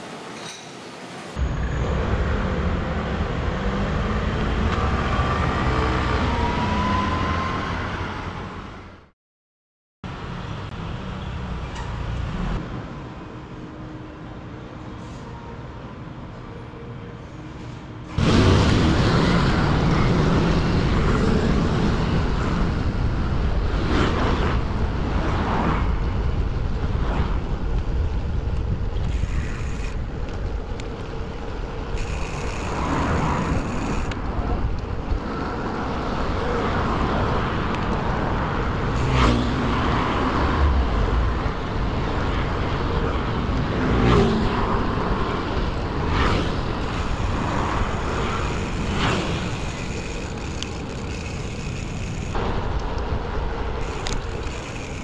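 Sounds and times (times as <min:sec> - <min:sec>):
city road traffic: 0:00.0 - 0:09.2, 0:10.0 - 0:55.0
wind rumble on microphone: 0:18.2 - 0:55.0
motor scooters: 0:27.6 - 0:40.0, 0:40.8 - 0:55.0.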